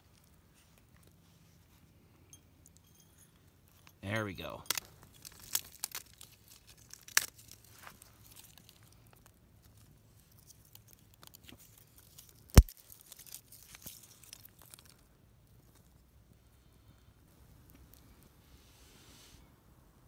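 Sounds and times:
kindling crackling and snapping: 0:04.4 - 0:16.0.

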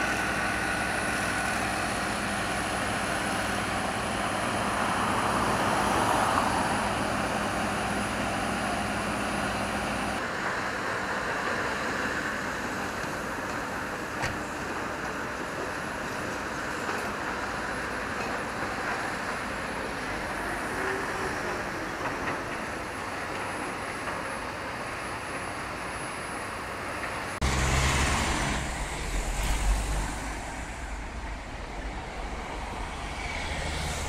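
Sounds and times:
building site noise: 0:00.0 - 0:34.0
road traffic hiss: 0:00.0 - 0:34.0
van engine rumble passing: 0:27.4 - 0:34.0.

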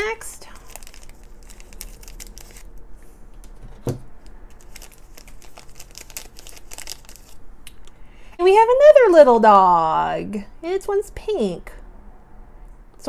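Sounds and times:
plastic foil bag crinkling: 0:00.0 - 0:02.8, 0:04.2 - 0:07.4.

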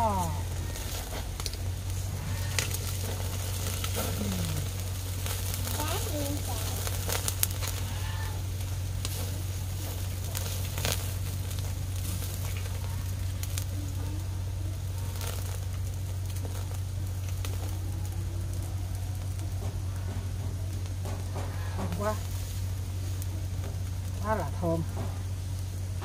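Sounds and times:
cooking fire crackling: 0:00.0 - 0:26.0
steady low hum: 0:00.0 - 0:26.0.

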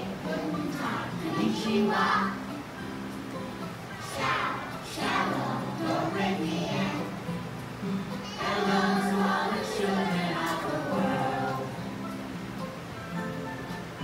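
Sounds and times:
children singing: 0:00.0 - 0:02.6, 0:03.9 - 0:07.3, 0:08.2 - 0:12.1
accompanying music: 0:00.0 - 0:14.0.

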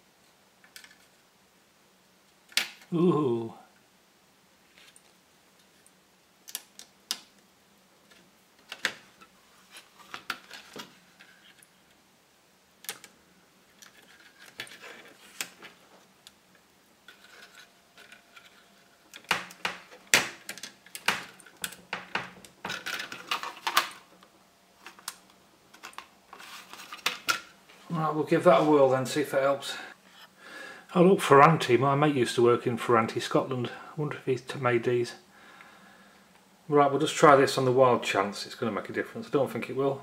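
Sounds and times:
small clicks and scrapes of chip pins: 0:12.8 - 0:16.4, 0:17.0 - 0:27.4.

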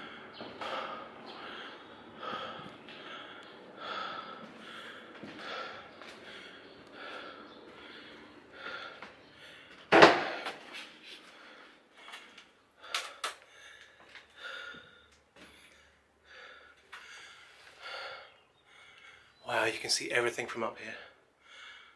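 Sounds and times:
man breathing hard: 0:00.0 - 0:19.4, 0:20.9 - 0:21.9
sharp knocks: 0:09.9 - 0:10.6.

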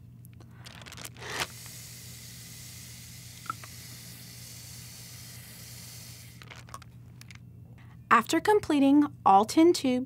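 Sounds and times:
breath blown into a bag: 0:00.5 - 0:06.5.

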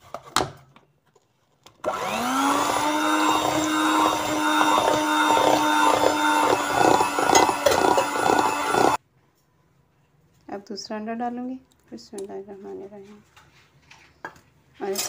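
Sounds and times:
electric hand mixer humming: 0:01.8 - 0:09.0.

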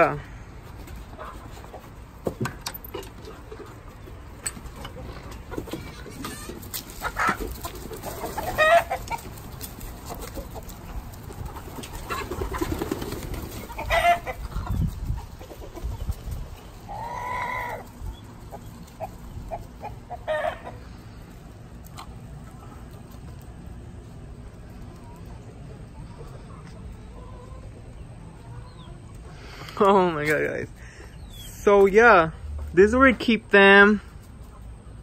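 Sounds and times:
chickens clucking and squawking: 0:00.0 - 0:33.4, 0:34.1 - 0:35.0
chicken long held call: 0:16.9 - 0:17.9.

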